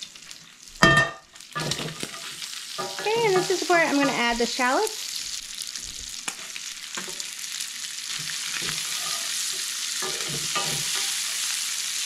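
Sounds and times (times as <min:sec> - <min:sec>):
shallots sizzling in fat: 0:00.0 - 0:12.0
wooden spoon scraping pan: 0:08.2 - 0:11.4.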